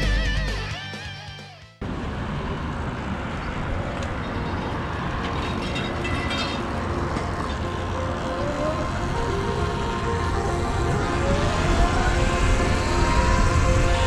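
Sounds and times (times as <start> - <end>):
rock guitar music: 0.0 - 1.8
wind and road noise: 1.8 - 14.0.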